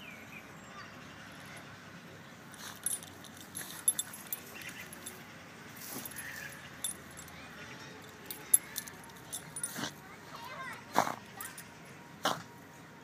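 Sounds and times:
harness and leash clinking: 2.5s - 11.8s
puppy paws scratching dirt: 5.8s - 7.3s.

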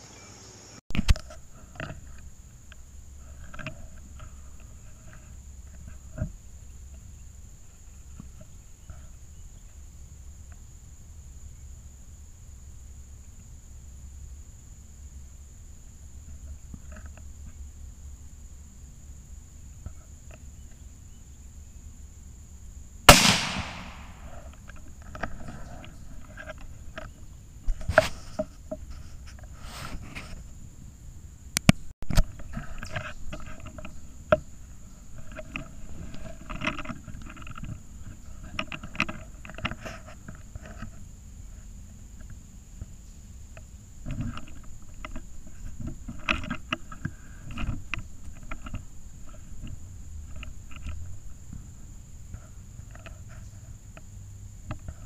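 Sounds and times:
rifle shot with echo: 23.1s - 24.4s.

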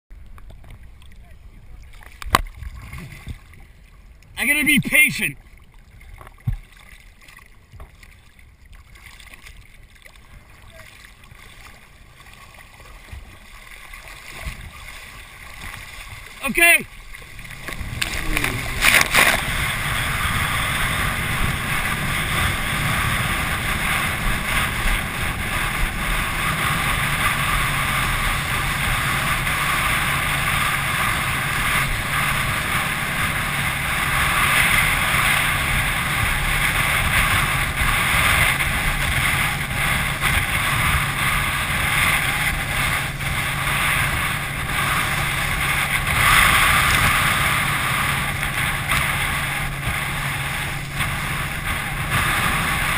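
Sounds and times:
faint boat engine drone: 0.1s - 52.9s
rushing water and spray: 0.2s - 52.9s
loud water splash: 10.9s - 52.9s
wind buffeting microphone: 17.2s - 52.9s.

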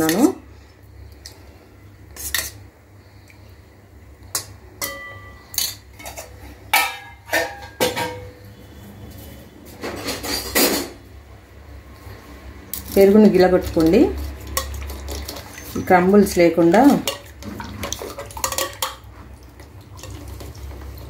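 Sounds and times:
dishes and utensils clinking: 4.4s - 8.4s, 9.7s - 11.0s, 13.7s - 19.2s.

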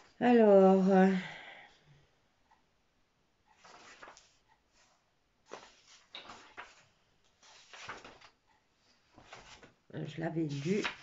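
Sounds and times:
book pages turning: 3.5s - 9.8s, 10.4s - 11.0s.

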